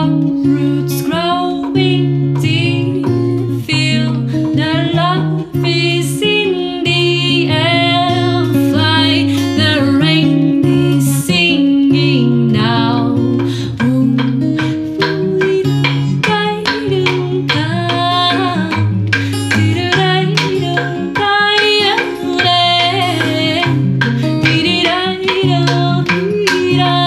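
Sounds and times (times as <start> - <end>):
acoustic guitar: 0.0 - 27.0
person singing: 0.0 - 27.0
devil stick clicks: 0.1 - 27.0.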